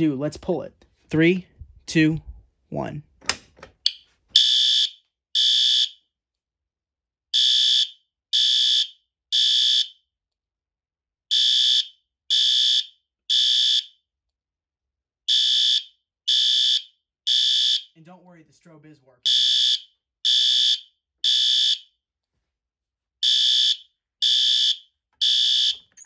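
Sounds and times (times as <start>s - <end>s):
fire alarm horn blasts: 4.4s - 6.0s, 7.4s - 9.9s, 11.3s - 13.9s, 15.3s - 18.0s, 19.2s - 21.8s, 23.2s - 26.0s.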